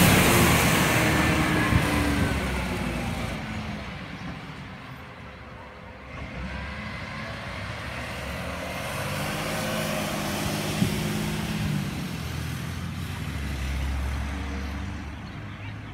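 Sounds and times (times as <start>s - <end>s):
garbage truck engine pulling away: 0.0s - 15.0s.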